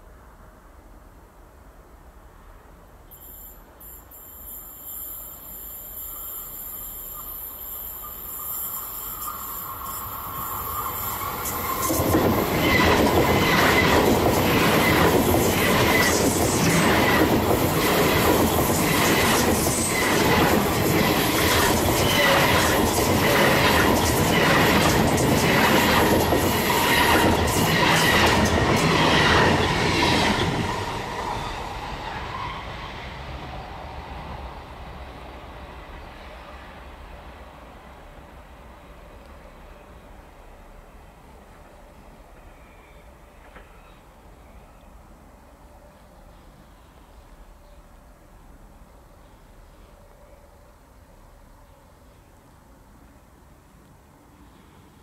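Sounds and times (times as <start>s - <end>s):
train wheels rumbling on rail: 3.8s - 44.4s.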